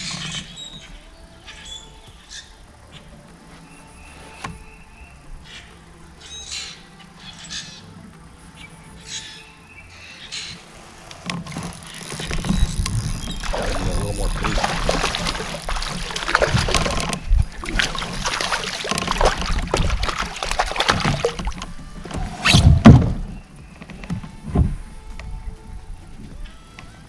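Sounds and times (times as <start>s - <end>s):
fish splashing: 11.2s - 23.5s.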